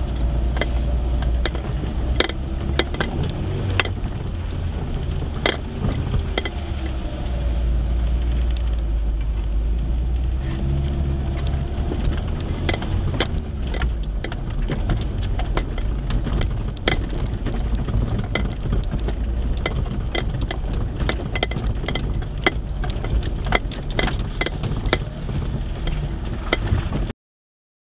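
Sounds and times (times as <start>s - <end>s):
low engine rumble: 0.0s - 27.1s
vehicle knocking and rattling: 0.0s - 27.1s.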